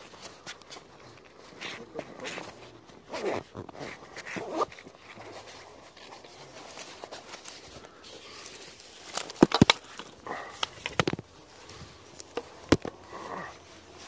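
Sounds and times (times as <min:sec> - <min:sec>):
footsteps through undergrowth: 0:00.0 - 0:14.0
sharp cracks and knocks: 0:09.0 - 0:11.3, 0:12.2 - 0:13.0.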